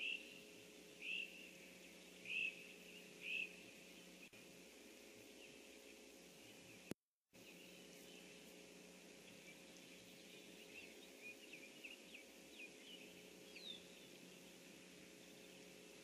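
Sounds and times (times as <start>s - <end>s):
birds chirping and whistling: 0.0s - 0.4s, 1.0s - 3.6s, 9.2s - 14.4s
low steady hum and hiss: 0.0s - 16.0s.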